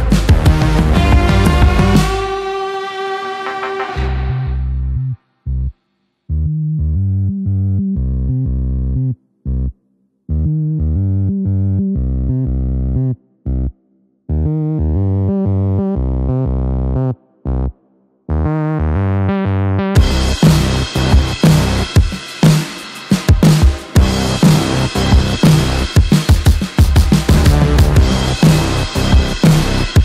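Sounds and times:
electronic music: 0.0 - 5.2, 18.3 - 30.0.

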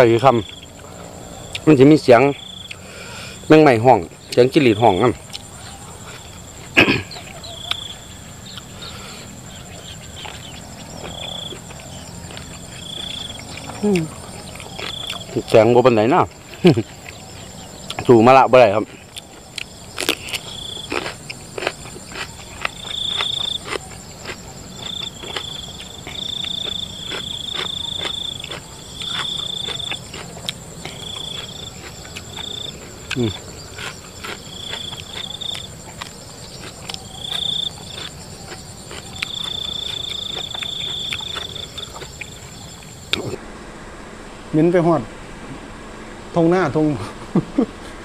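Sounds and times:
crickets chirping: 0.0 - 48.0
crunching and chewing cucumber: 4.4 - 43.4.

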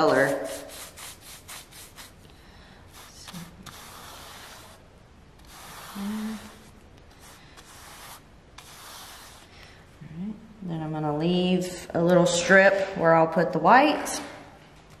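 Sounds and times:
paintbrush scrubbing canvas: 0.0 - 2.2, 2.9 - 9.7
person humming: 5.9 - 6.7.

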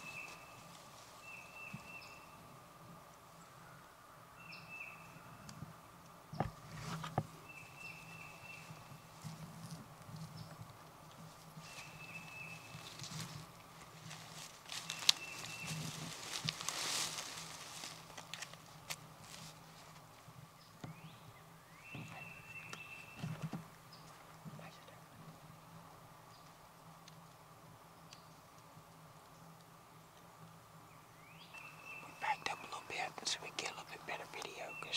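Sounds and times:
dry leaves rustling and crunching: 11.2 - 20.1.

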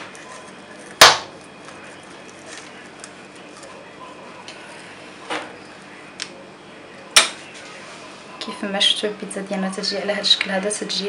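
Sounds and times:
sharp crack: 1.0 - 1.4.

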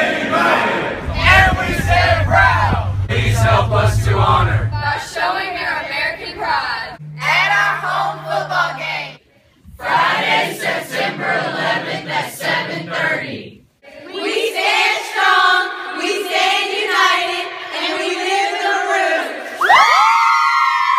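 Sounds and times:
girls singing long notes: 0.0 - 9.2
mixed voices singing: 0.0 - 9.2, 9.8 - 19.6.

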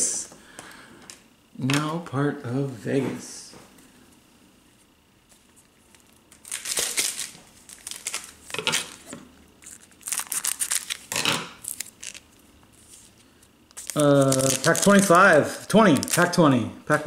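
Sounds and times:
crinkly wrapper rustling: 5.4 - 16.4
scissors cutting wrapper: 5.9 - 9.0, 9.6 - 12.2, 13.7 - 15.2, 15.8 - 16.4.

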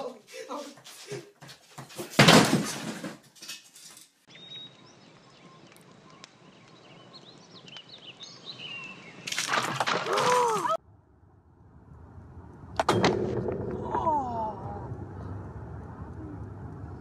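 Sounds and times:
songbirds chirping: 4.2 - 9.4
loud crash: 12.7 - 15.6.

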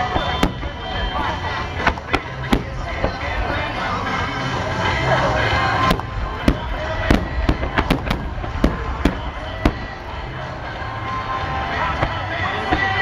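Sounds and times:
firework shells bursting: 0.0 - 4.5, 5.6 - 10.3
low rumble: 0.0 - 12.1.

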